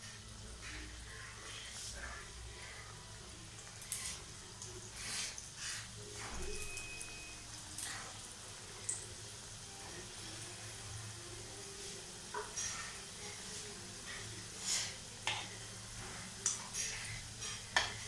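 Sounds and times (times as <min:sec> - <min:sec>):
food sizzling in oil: 0:00.0 - 0:18.0
spoon turning food in oil: 0:11.4 - 0:18.0.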